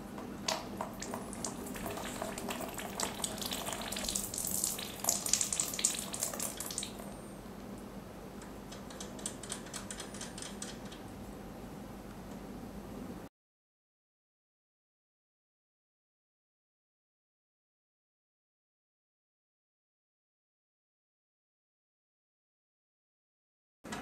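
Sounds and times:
water trickling through hose: 0:00.8 - 0:07.0.

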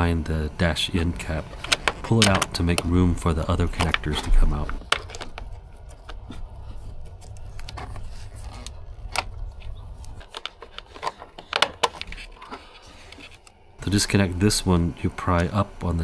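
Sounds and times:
plastic connectors clicking and rattling: 0:01.4 - 0:02.9, 0:03.5 - 0:06.3, 0:07.1 - 0:13.6.

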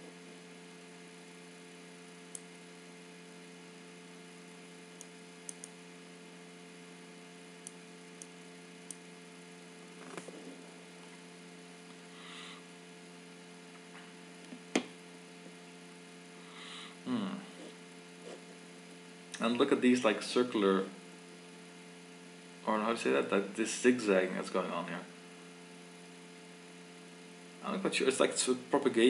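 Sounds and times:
steady electrical hum: 0:00.0 - 0:29.0
computer mouse clicks: 0:05.0 - 0:05.8.

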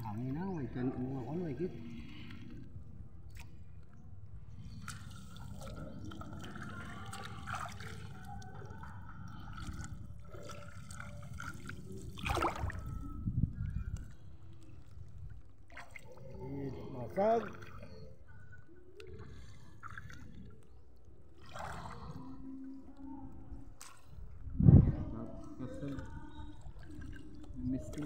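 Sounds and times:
water sloshing and splashing: 0:00.0 - 0:28.0
low wind rumble: 0:08.1 - 0:17.0, 0:20.3 - 0:27.9.

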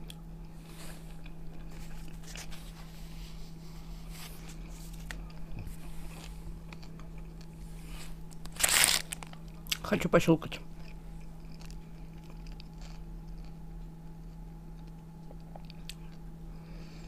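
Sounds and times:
steady low hum: 0:00.0 - 0:17.0
person chewing: 0:04.4 - 0:09.8, 0:10.8 - 0:16.2.

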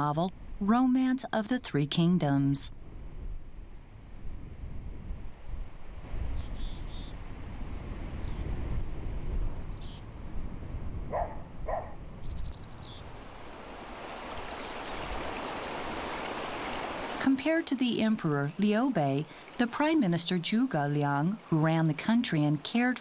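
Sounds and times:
wild birds chirping: 0:06.1 - 0:07.2, 0:09.6 - 0:10.2, 0:11.2 - 0:13.1, 0:14.0 - 0:17.1.

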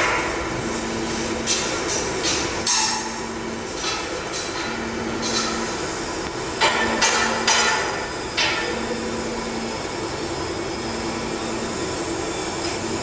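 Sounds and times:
factory machinery hum: 0:00.0 - 0:13.0
sharp metal knocks: 0:06.6 - 0:08.7.

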